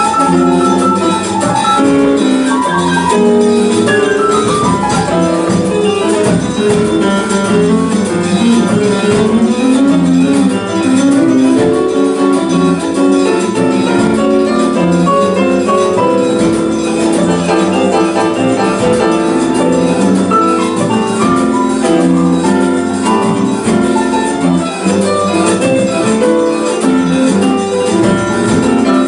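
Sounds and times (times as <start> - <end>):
live band music: 0.0 - 29.0
piano playing short notes: 0.0 - 29.0.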